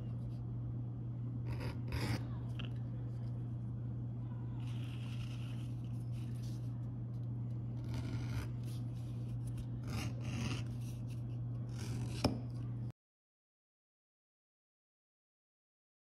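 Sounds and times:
steady low hum: 0:00.0 - 0:12.9
edge beveler scraping leather: 0:01.5 - 0:02.2, 0:04.6 - 0:05.9, 0:07.8 - 0:08.8, 0:09.6 - 0:12.4.

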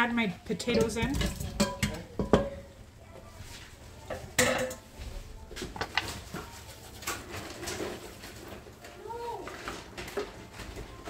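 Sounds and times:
utensil clinking against pot: 0:00.6 - 0:02.7, 0:04.1 - 0:04.8
cookware clatter: 0:00.6 - 0:02.8, 0:04.1 - 0:05.0.

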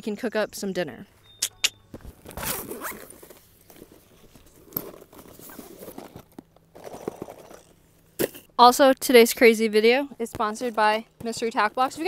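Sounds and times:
zipper clicks: 0:01.4 - 0:03.4
zipper being pulled open: 0:02.1 - 0:07.6.

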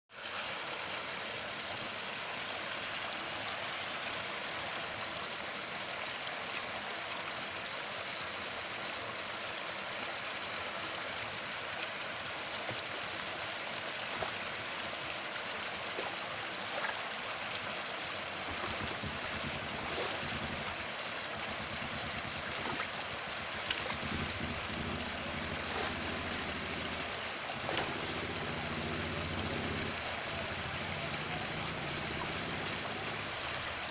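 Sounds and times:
water rushing in canal: 0:00.1 - 0:33.9
low rumble: 0:18.5 - 0:33.4.

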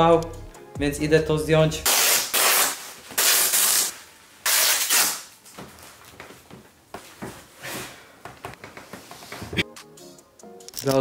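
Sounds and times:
velcro ripping open: 0:01.8 - 0:05.4
fabric rustling: 0:05.3 - 0:09.6.

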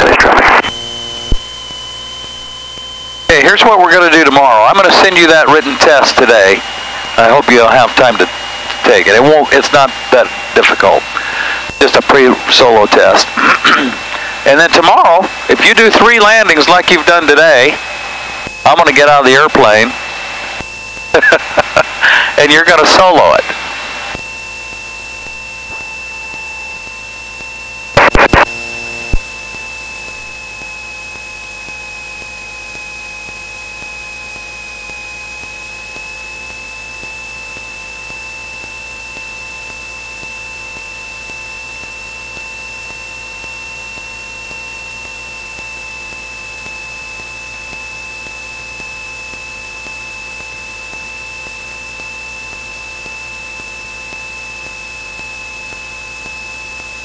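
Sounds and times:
high steady whine: 0:00.0 - 0:57.0
airplane cockpit hiss: 0:04.0 - 0:24.5.

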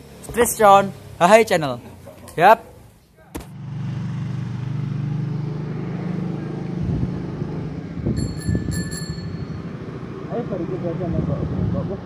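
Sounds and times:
engine running: 0:03.4 - 0:12.0
high metallic ringing: 0:08.1 - 0:09.9.

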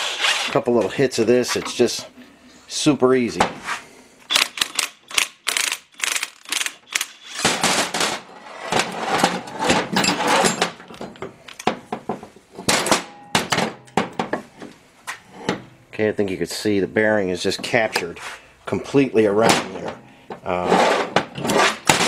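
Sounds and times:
metal clicks and clanks: 0:04.3 - 0:08.2.

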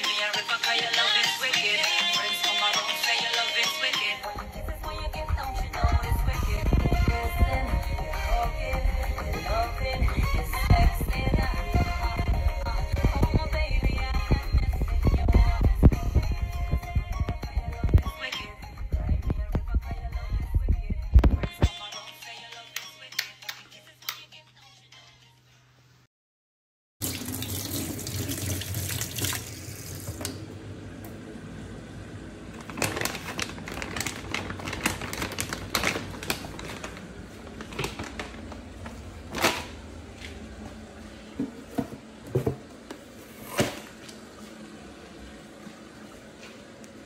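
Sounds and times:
tap water running into sink: 0:27.0 - 0:30.4.

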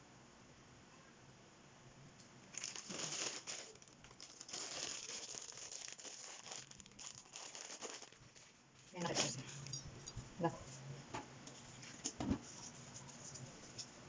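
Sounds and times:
dry noodles crackling when pulled apart: 0:02.6 - 0:08.3.

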